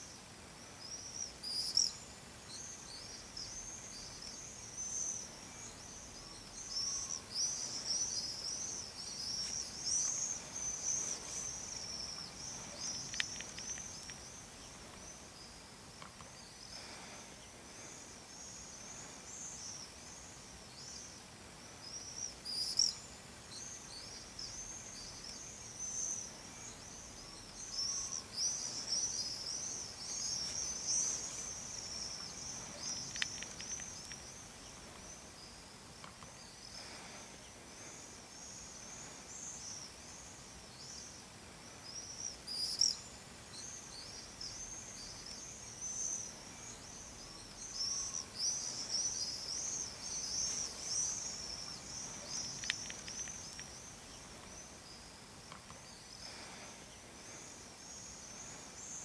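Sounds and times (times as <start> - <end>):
small birds twittering: 0.0 - 59.0.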